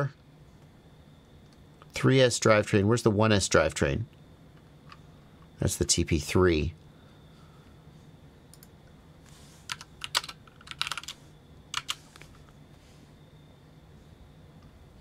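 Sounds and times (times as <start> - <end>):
typing on computer keyboard: 9.7 - 12.0.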